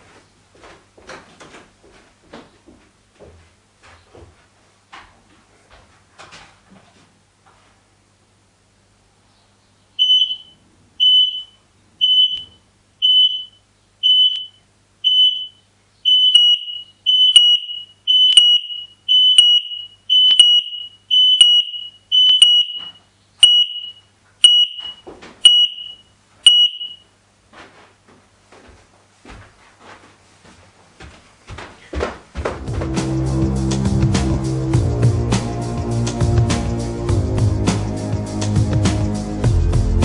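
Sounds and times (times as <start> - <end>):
smoke alarm beeping: 10.0 - 27.0.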